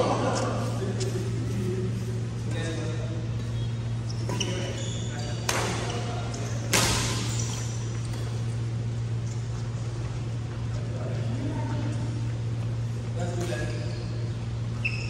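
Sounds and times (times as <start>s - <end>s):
steady low hum: 0.0s - 15.0s
shoes squeaking on wooden court: 2.5s - 10.8s, 12.4s - 15.0s.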